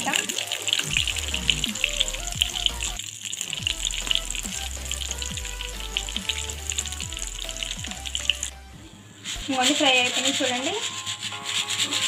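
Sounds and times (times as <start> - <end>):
dough frying in hot oil: 0.0 - 8.5.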